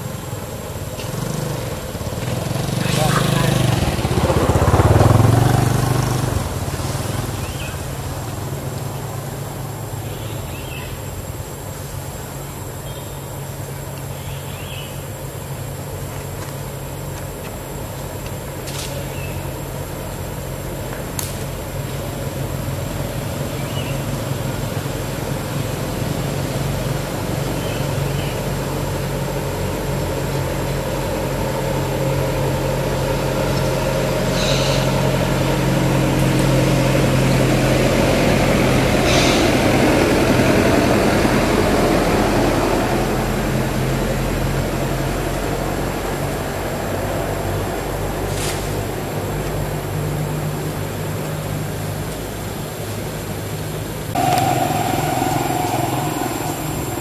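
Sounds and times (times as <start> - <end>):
vehicle engine humming: 0.0 - 10.0, 54.1 - 57.0.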